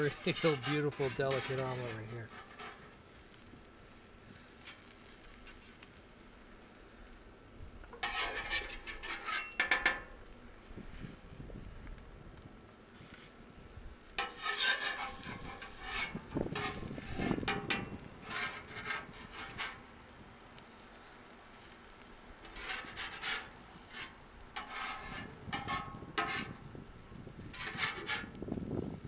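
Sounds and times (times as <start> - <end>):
metal spatula scraping griddle: 0.0 - 3.4, 4.0 - 5.9, 7.9 - 10.2, 14.1 - 20.5, 21.5 - 28.6.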